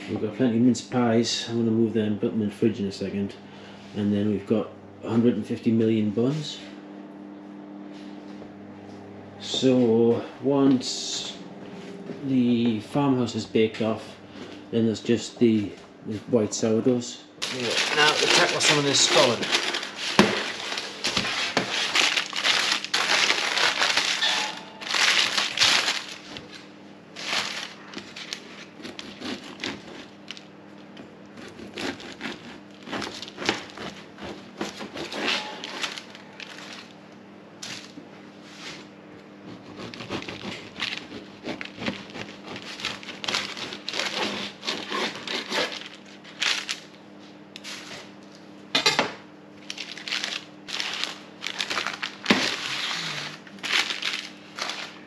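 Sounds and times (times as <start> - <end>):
steady low hum: 0.0 - 55.0
knife sawing through crunchy cake: 17.4 - 22.0, 27.2 - 30.4, 31.3 - 36.6, 39.4 - 45.8
baking paper crinkling: 17.4 - 30.5, 31.4 - 37.0, 39.8 - 47.0, 49.6 - 55.0.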